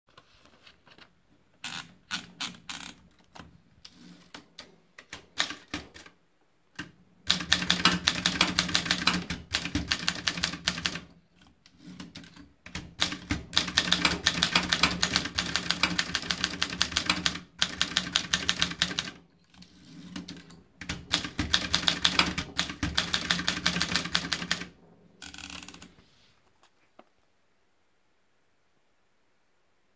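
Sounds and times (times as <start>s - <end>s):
typewriter keystrokes: 5.0s - 6.1s, 6.8s - 11.1s, 12.0s - 19.2s, 20.2s - 25.9s.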